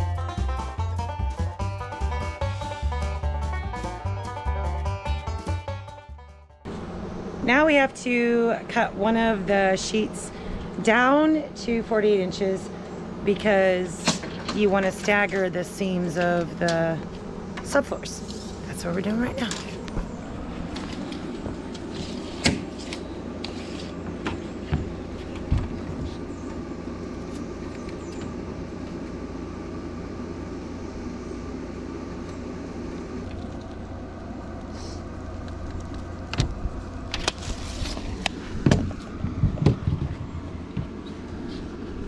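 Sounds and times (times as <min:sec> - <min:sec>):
air compressor humming: 0:00.0 - 0:42.0
knocks on plywood subfloor: 0:24.3 - 0:26.2, 0:38.6 - 0:41.0.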